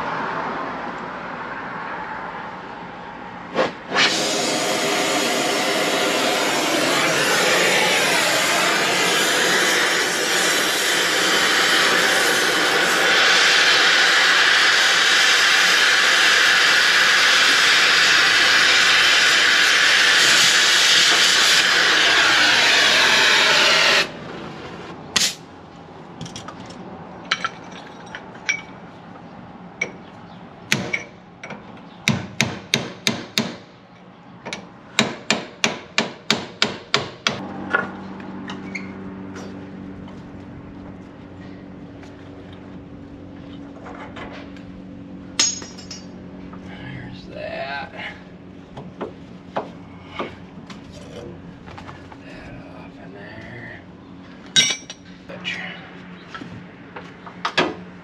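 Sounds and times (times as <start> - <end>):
grinder cutting steel: 3.9 - 24.2
hammer striking metal: 45.4 - 46.1, 54.6 - 55.0.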